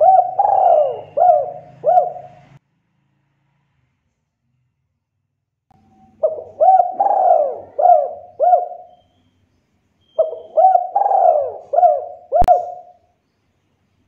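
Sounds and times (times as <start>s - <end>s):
dove cooing: 0.0s - 2.6s, 6.1s - 9.1s, 10.2s - 13.0s.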